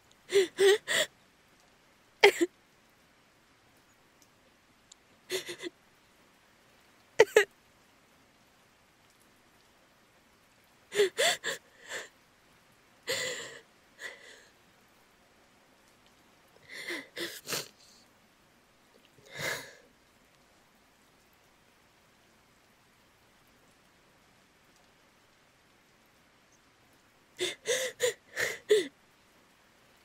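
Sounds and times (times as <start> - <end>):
woman crying quietly: 0.2 - 1.1, 2.2 - 2.5, 5.3 - 5.8, 7.2 - 7.5, 10.9 - 12.1, 13.1 - 14.6, 16.6 - 18.0, 19.2 - 19.8, 27.4 - 29.0.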